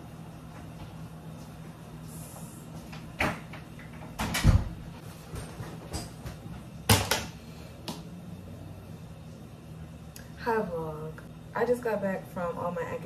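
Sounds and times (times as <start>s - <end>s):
heavy door thudding shut: 4.2s - 4.8s.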